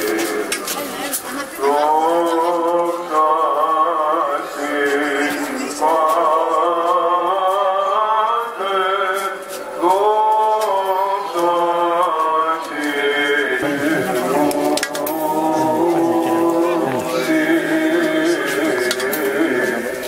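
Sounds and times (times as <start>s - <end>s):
man chanting: 9.8s - 20.0s.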